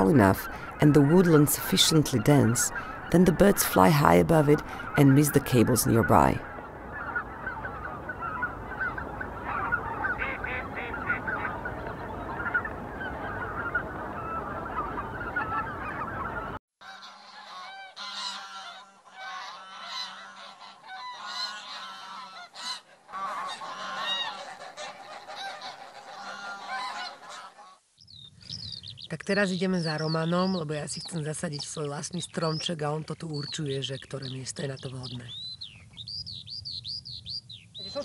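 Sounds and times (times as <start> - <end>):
geese honking: 0.0 - 27.8.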